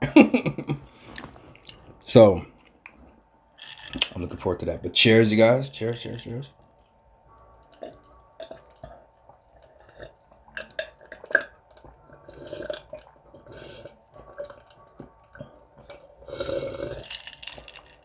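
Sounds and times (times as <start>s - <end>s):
person gulping juice: 7.7s - 18.0s.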